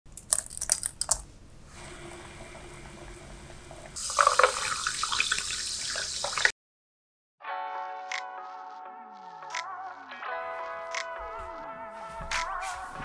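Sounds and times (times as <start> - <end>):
fizzy drink poured over ice: 4.0 - 6.5.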